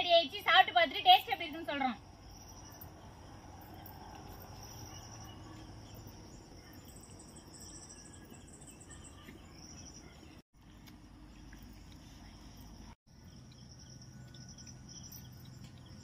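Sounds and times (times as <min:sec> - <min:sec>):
higher-pitched insect trill: 0:01.9 - 0:08.8.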